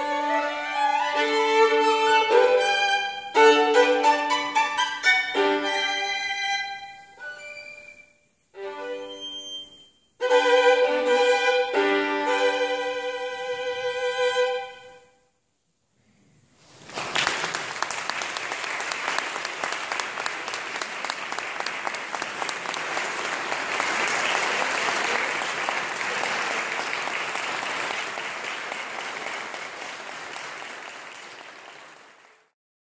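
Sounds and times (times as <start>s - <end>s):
audience applauding: 16.8s - 32.6s.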